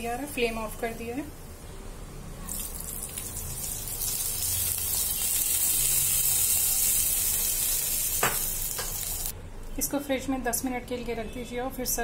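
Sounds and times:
hot ghee sizzling: 2.3 - 9.4.

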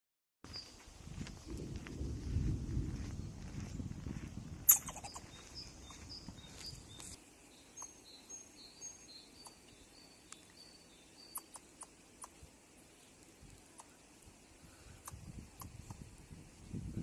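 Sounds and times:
low rumble: 1.2 - 4.7
high-pitched calls: 4.7 - 7.1, 10.6 - 11.9.

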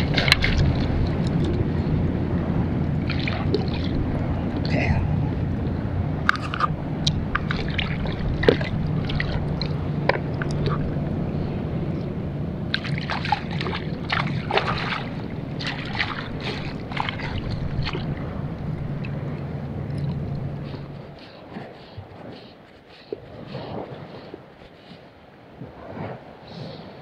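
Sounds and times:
water dripping and splashing: 0.0 - 2.1, 2.8 - 4.8, 6.2 - 11.3, 12.7 - 21.9
steady low hum: 0.0 - 24.7
fishing gear clicks and knocks: 6.2 - 10.9.

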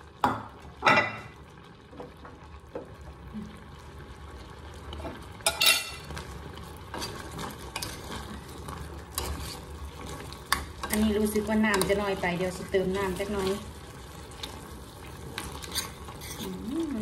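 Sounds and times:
curry simmering: 0.0 - 17.0
metal spoon clanking on saucepan: 5.5 - 6.0.

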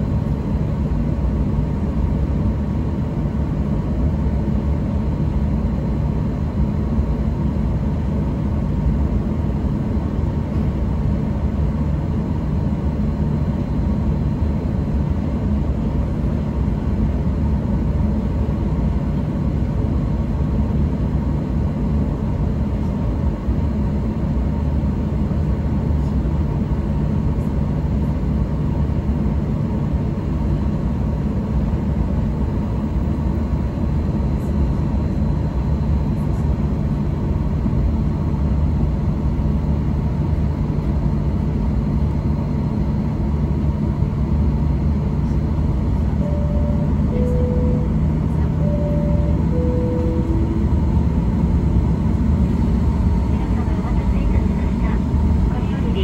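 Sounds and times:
aircraft cabin engine hum: 0.0 - 56.0
two-tone cabin chime: 46.2 - 51.7.

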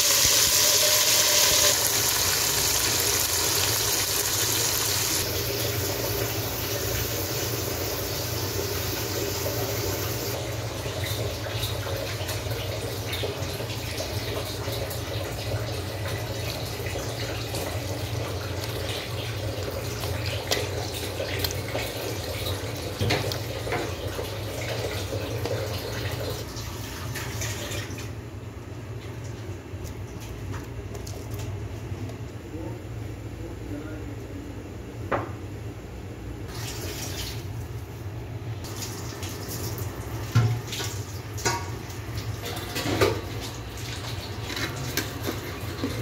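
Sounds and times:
water pouring into a pot: 0.0 - 27.9.

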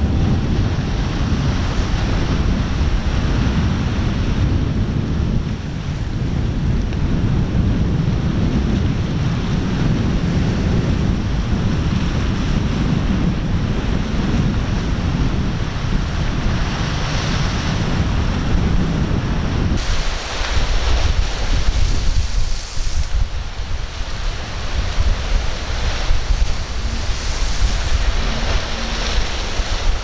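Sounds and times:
breaking surf: 0.0 - 30.0
wind buffeting microphone: 0.0 - 30.0.

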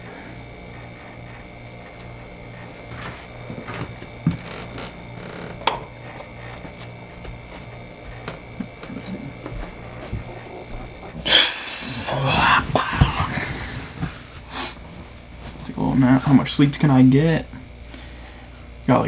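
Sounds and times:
steady low hum: 0.0 - 19.0
bed covers rustling: 12.4 - 15.7.

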